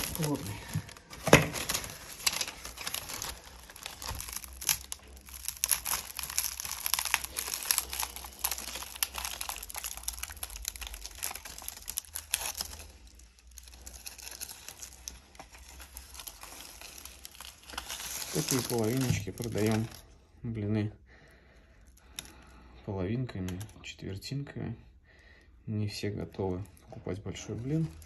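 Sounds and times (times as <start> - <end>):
tea leaves crackling and crunching: 0.0 - 20.2, 21.9 - 24.0, 26.0 - 28.0.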